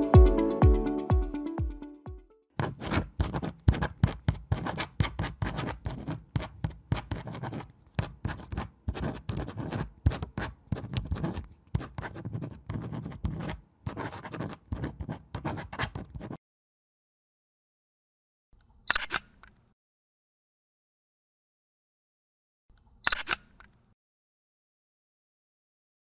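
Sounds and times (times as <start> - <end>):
pencil scratching on paper: 2.6 - 16.4.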